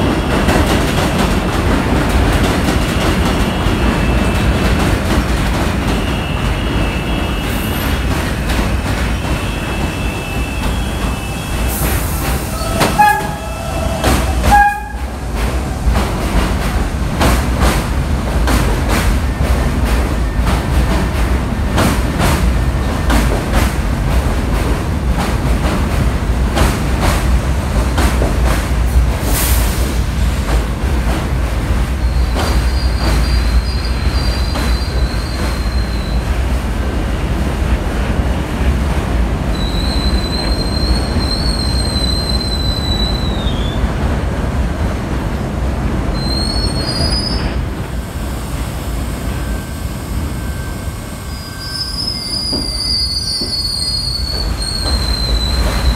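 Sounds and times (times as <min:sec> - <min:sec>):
train rumbling: 0:00.0 - 0:55.9
high wheel squeals: 0:39.5 - 0:43.8, 0:49.3 - 0:55.9.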